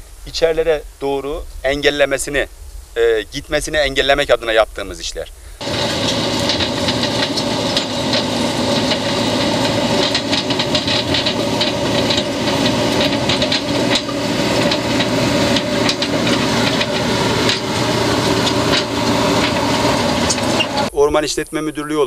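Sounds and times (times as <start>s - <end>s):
bucket clattering and scraping: 5.6s - 20.9s
diesel engine running: 5.6s - 21.0s.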